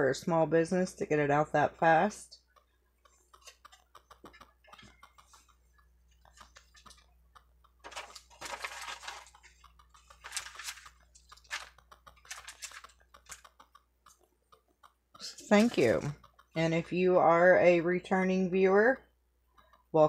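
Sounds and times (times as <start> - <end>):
light clicks and taps: 2.3 - 18.2, 18.9 - 20.0
packaging crinkling and rustling: 7.8 - 13.5.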